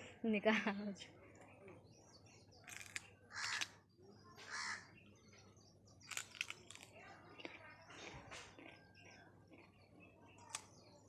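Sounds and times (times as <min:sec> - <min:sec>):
teeth crunching cucumber: 0:02.6 - 0:03.8, 0:06.0 - 0:10.9
crow cawing: 0:03.3 - 0:03.7, 0:04.5 - 0:04.9.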